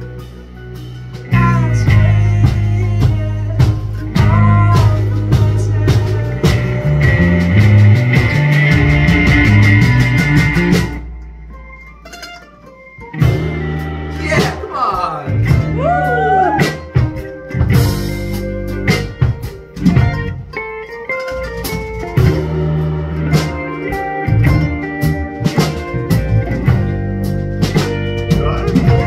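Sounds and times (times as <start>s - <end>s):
drums beating: 0.0s - 29.0s
keyboard chords: 0.0s - 29.0s
mandolin picking: 9.5s - 15.6s, 17.1s - 22.2s.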